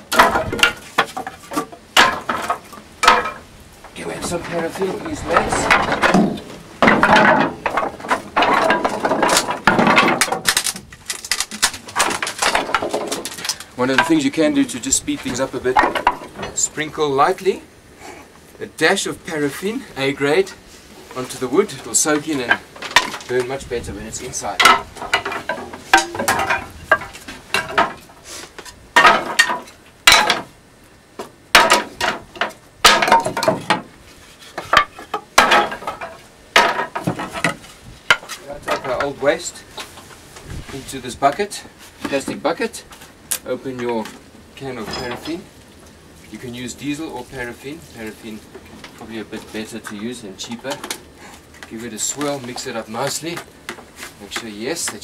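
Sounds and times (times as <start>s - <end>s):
wood and metal knocking: 0.0s - 14.5s, 15.2s - 16.6s, 22.1s - 23.6s, 24.2s - 28.1s, 29.0s - 30.5s, 31.2s - 33.9s, 34.5s - 39.3s
wooden planks clattering on steel: 0.0s - 16.9s, 21.1s - 30.5s, 31.2s - 45.5s.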